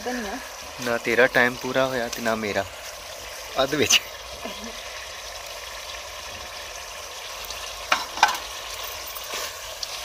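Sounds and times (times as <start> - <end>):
curry sizzling in metal pot: 0.0 - 10.0
utensil knocking on pot: 7.9 - 8.4.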